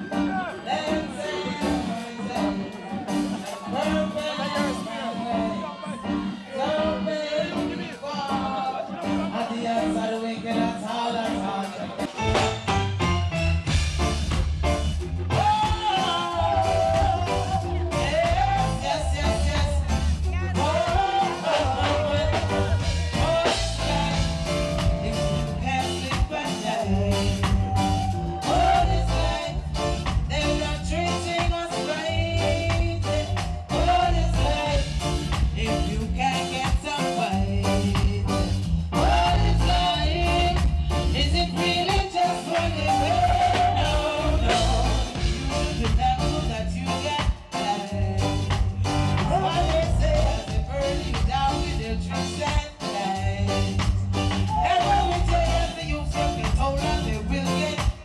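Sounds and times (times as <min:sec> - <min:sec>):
drum kit: 0:00.0 - 0:58.0
guitar: 0:00.0 - 0:58.0
heavy bass line: 0:00.0 - 0:58.0
woman singing: 0:15.4 - 0:53.8.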